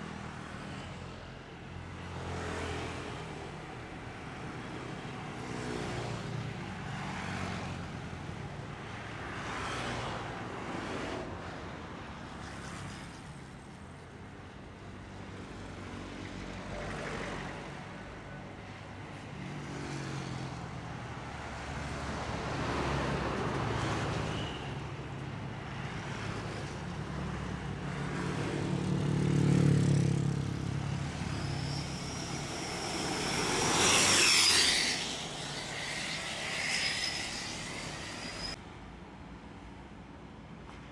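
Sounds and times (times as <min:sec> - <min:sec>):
trucks passing: 0:21.4 - 0:38.6
cars passing: 0:25.0 - 0:38.6
motorcycles passing: 0:27.8 - 0:38.6
high engine whine: 0:28.4 - 0:38.6.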